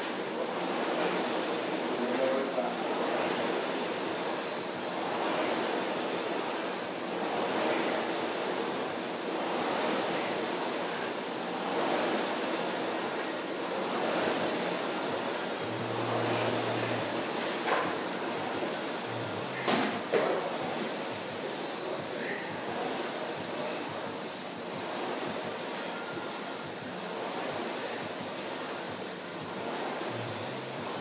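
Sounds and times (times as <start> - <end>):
rowing machine flywheel whooshing: 0.0 - 31.0.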